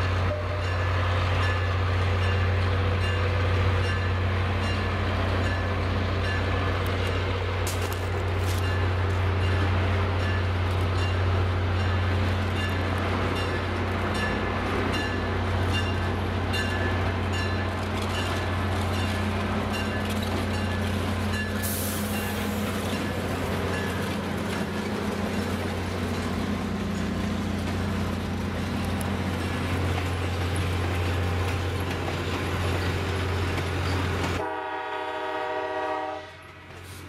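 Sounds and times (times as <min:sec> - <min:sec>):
locomotive bell ringing: 0:00.0 - 0:06.8, 0:08.5 - 0:25.5
locomotive engine rumble: 0:00.0 - 0:37.0
hiss: 0:21.5 - 0:22.8.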